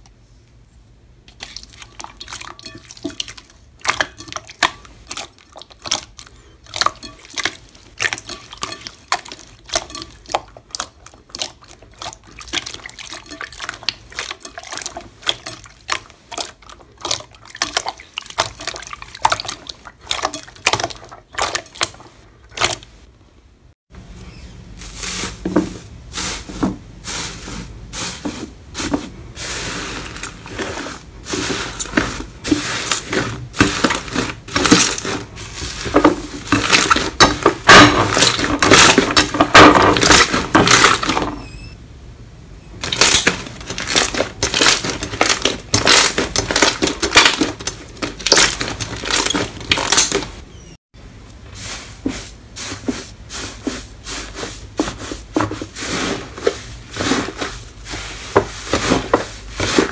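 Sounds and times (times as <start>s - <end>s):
metallic foil crinkling: 42.8s - 50.4s.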